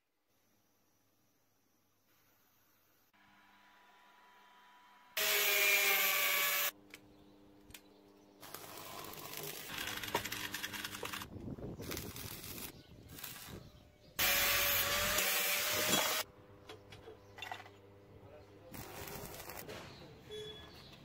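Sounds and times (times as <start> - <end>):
whirring tool: 3.2 - 6.8, 14.2 - 16.3
stick welder crackling: 7.7 - 16.3, 18.7 - 19.9.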